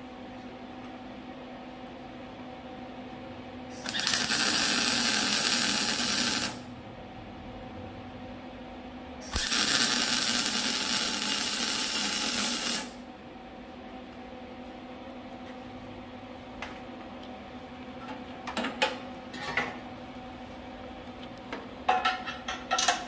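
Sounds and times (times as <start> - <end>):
low shop hum: 0.0 - 23.0
welding arc crackling and hissing: 3.8 - 6.7, 9.2 - 13.0.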